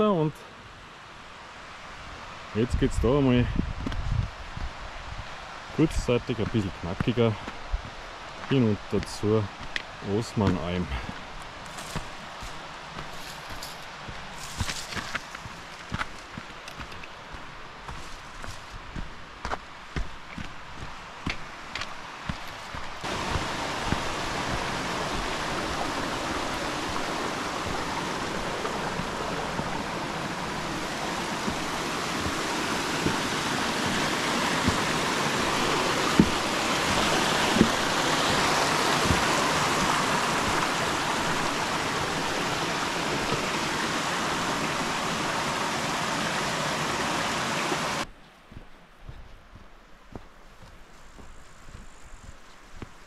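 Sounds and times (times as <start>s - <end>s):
stream rushing: 0.0s - 48.1s
sharp knocks: 36.1s - 37.9s.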